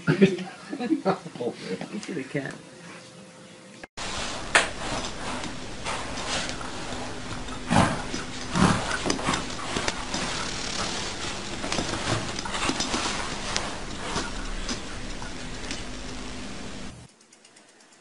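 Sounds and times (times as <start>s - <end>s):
pet bed dragged across floor: 4.0s - 17.1s.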